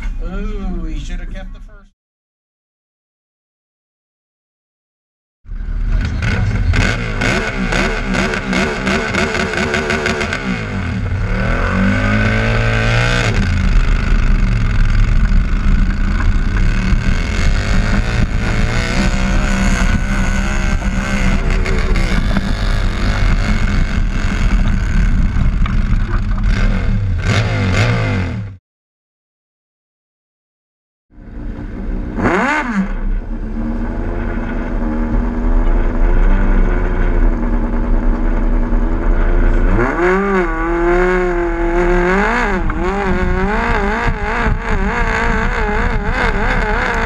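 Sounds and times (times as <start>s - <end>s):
tractor engine running hard: 12.1s - 27.8s.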